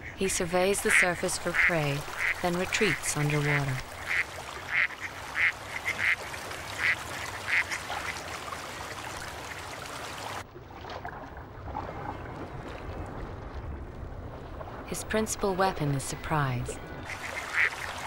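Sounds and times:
ducks quacking: 0.0s - 8.2s, 17.0s - 18.0s.

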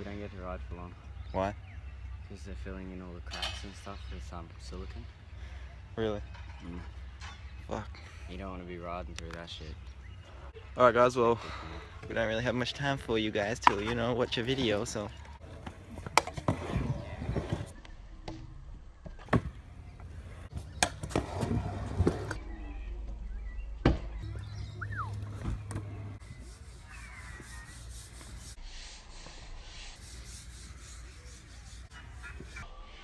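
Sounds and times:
scooter wheels rolling on concrete: 12.1s - 17.8s, 20.0s - 22.4s.

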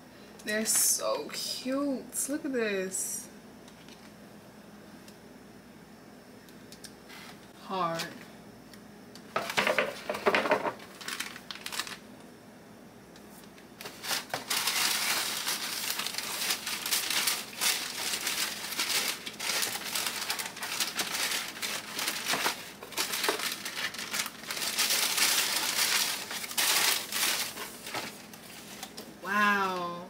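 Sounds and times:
packaging crinkling: 9.4s - 12.0s, 13.8s - 29.0s.

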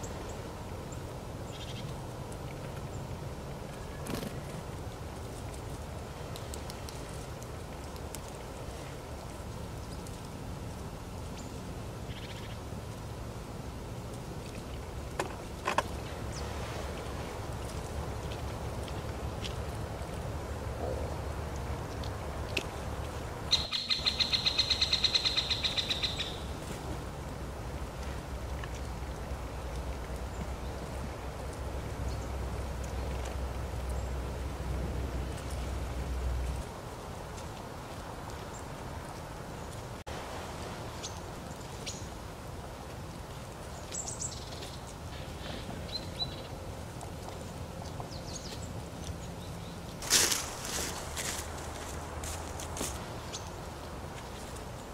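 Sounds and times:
low outdoor rumble: 0.0s - 54.9s
small birds chirping: 21.8s - 26.6s, 43.6s - 46.6s, 47.2s - 50.0s, 50.6s - 54.9s
faint bird calls: 23.5s - 26.5s.

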